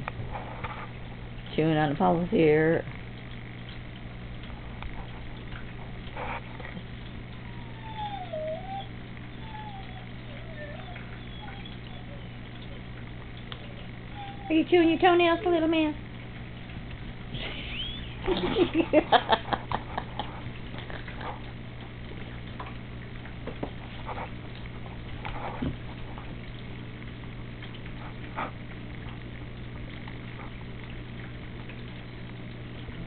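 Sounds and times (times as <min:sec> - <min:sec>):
puppy play growls: 0:07.4 - 0:12.8.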